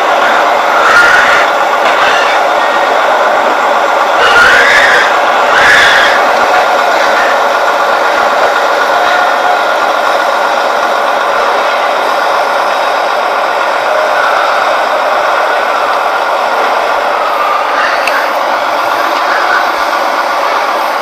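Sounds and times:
pigs squealing and screaming: 0.7s - 2.8s, 4.2s - 6.4s.

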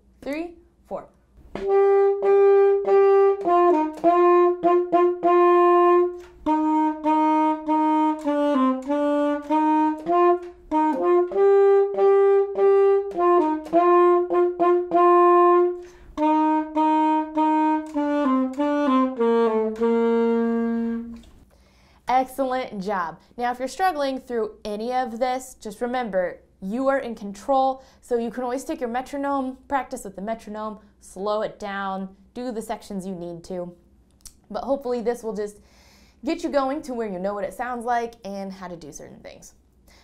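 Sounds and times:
solo alto saxophone melody: 1.5s - 21.4s.

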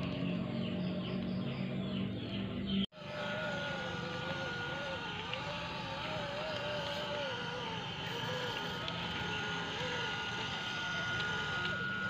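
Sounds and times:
electric motor and gears whining: 2.9s - 12.0s.

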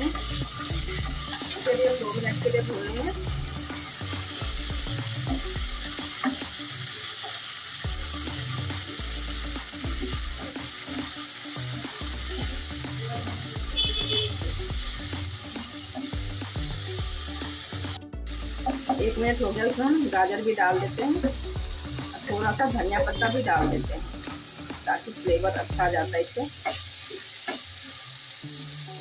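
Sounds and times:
vegetables sizzling in oil: 0.0s - 29.0s
spatula stirring in pan: 0.1s - 17.4s.

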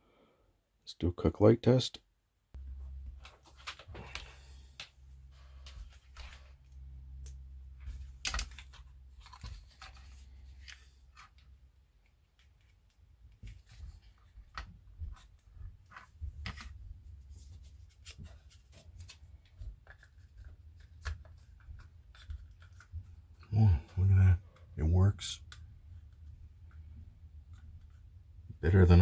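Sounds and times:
plastic parts clicking and tapping: 7.2s - 15.2s.

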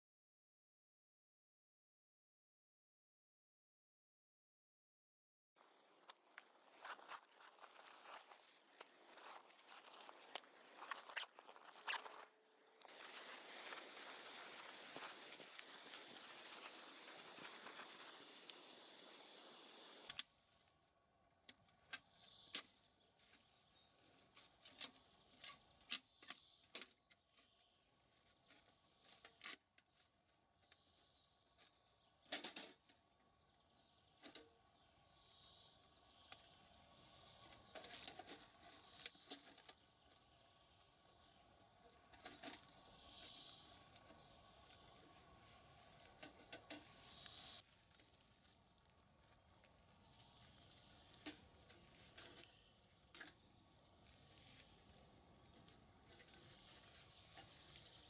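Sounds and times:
faint bird chirps: 6.8s - 32.3s, 33.0s - 58.0s
steady hiss: 12.8s - 20.2s, 41.6s - 58.0s.

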